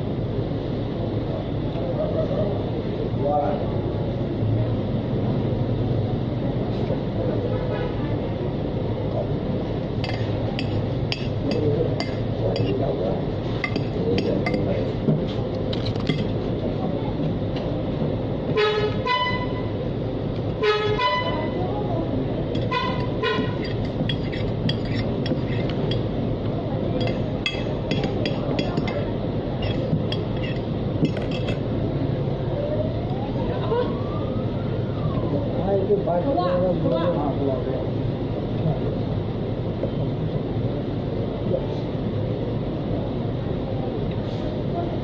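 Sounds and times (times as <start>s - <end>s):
traffic rumble: 0.0s - 45.0s
short vehicle horn toots: 18.6s - 19.6s, 22.7s - 23.6s
cutlery clinking on plate: 22.6s - 26.0s, 27.0s - 31.6s.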